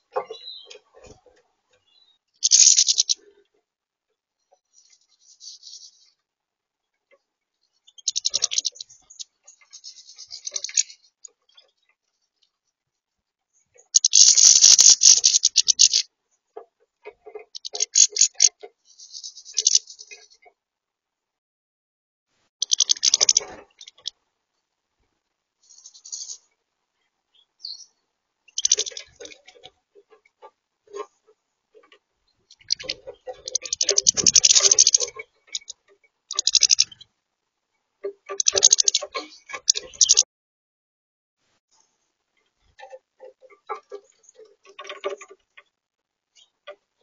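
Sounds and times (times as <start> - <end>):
finches twittering: 1.8 - 3.3, 7.8 - 11.8, 13.8 - 16.0, 17.2 - 20.5, 22.6 - 24.1, 25.6 - 26.5, 27.4 - 31.2, 31.8 - 37.1, 38.3 - 40.2
beaks clicking on seed and plastic: 2.4 - 3.2, 14.0 - 16.0, 17.6 - 18.5, 22.6 - 24.1, 28.6 - 29.4, 32.6 - 35.7, 36.3 - 37.0, 38.3 - 40.2
bird feet and beaks tapping plastic: 2.4 - 3.2, 16.6 - 18.7, 28.6 - 31.1, 31.8 - 37.0, 38.0 - 40.2, 42.8 - 45.7.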